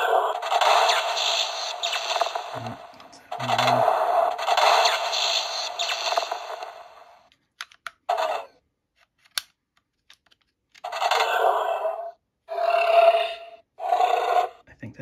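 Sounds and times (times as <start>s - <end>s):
toy electronic sound effects: 0.0s - 6.8s, 10.9s - 14.6s.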